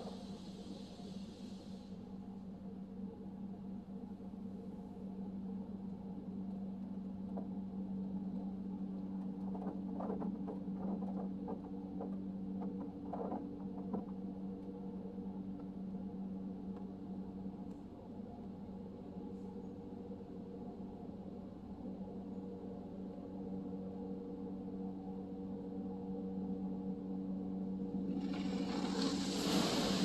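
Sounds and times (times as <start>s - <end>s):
car wash machine hum: 28.1s - 30.0s.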